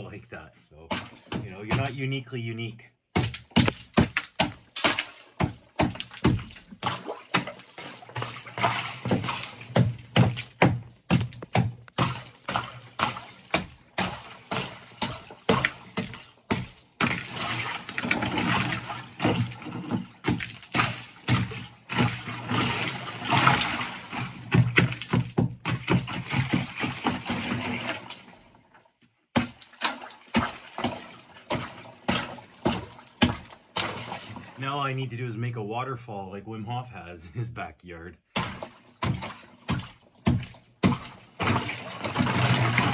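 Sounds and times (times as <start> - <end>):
ice and water sloshing: 0.9 - 2.0, 3.2 - 35.2, 38.3 - 42.9
hammer knocking on ice: 3.1 - 7.5, 9.1 - 17.2, 20.2 - 22.1, 24.5 - 26.5, 38.4 - 41.5.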